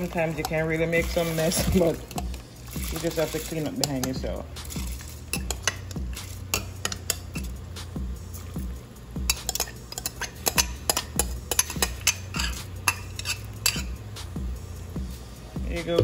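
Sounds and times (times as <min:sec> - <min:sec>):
spoon clinking against glass jug: 0:03.7 - 0:07.5, 0:09.2 - 0:14.0.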